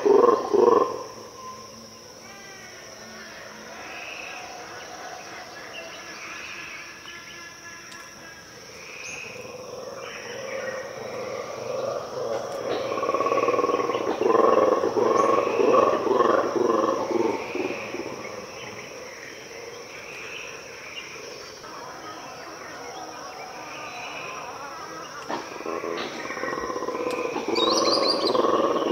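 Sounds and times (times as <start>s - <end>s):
monkeys roaring and growling: 0.0s - 1.4s, 9.2s - 21.6s, 22.3s - 28.9s.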